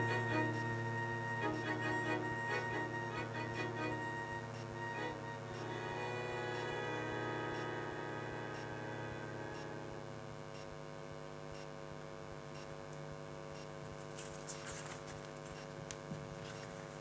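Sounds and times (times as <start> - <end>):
string quartet chord: 0.0 - 10.3
faint steady hum: 0.0 - 17.0.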